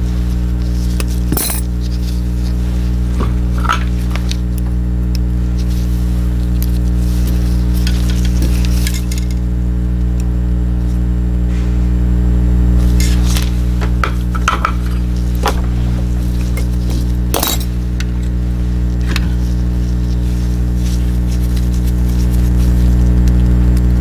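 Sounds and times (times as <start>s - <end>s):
steady low hum: 0.0s - 24.0s
small parts clicking and clinking: 1.3s - 1.7s, 17.3s - 17.7s.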